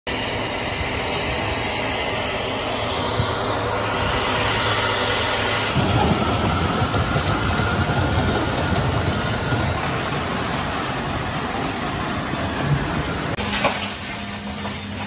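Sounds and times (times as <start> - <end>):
turbine engine with hiss: 0.1 - 15.0
tank rumbling and rattling: 0.6 - 15.0.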